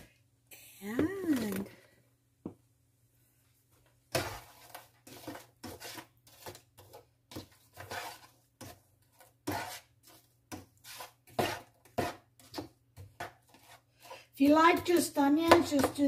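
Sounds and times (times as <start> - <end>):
spatula scraping frying pan: 4.1 - 16.0.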